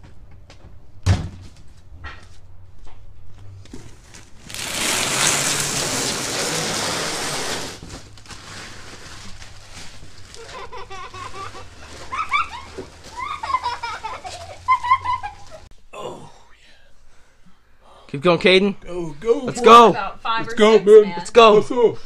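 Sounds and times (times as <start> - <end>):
wrapping paper crinkling: 4.0 - 15.7.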